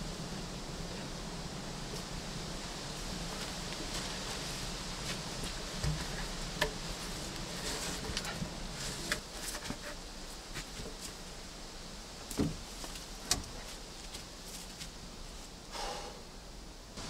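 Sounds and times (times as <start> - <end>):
wooden poles knocking together: 7.5 - 10.0, 12.3 - 13.6.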